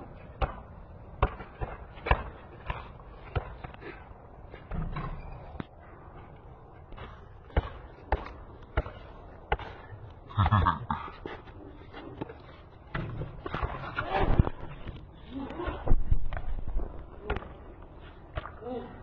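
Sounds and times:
basketball bouncing on concrete: 0.4 - 3.8, 7.0 - 9.8.

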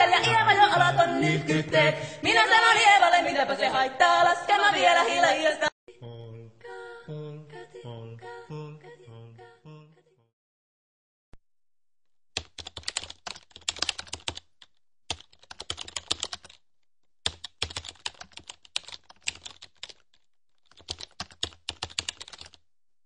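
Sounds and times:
keyboard typing: 12.4 - 16.6, 17.2 - 22.6.

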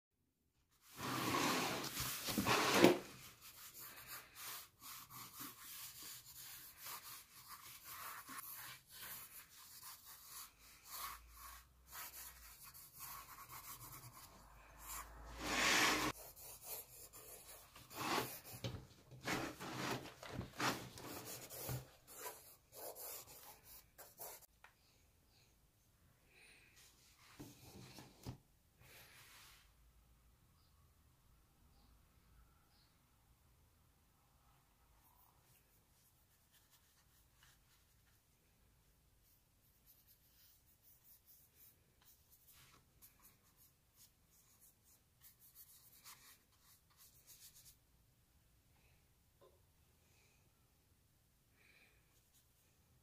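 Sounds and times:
pencil scratching on paper: 0.8 - 24.5.

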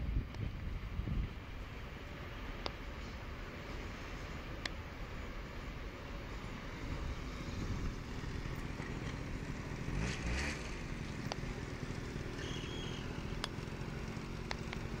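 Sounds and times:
scooter engine passing by: 6.6 - 15.0.

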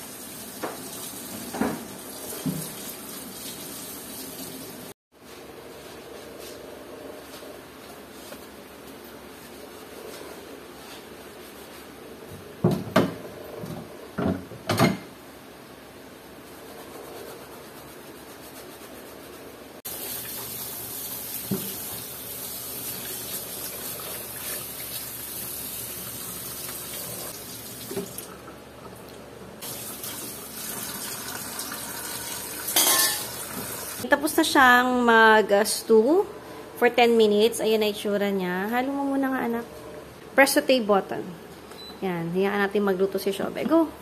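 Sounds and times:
tap water running onto dishes: 0.0 - 4.9, 19.9 - 34.0.

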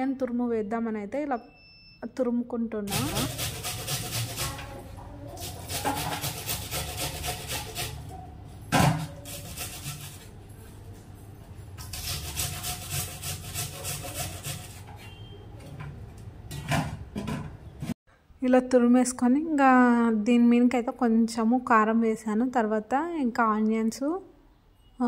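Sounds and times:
grating on metal grater: 2.9 - 4.8, 5.4 - 8.2, 9.0 - 10.3, 11.8 - 14.9.

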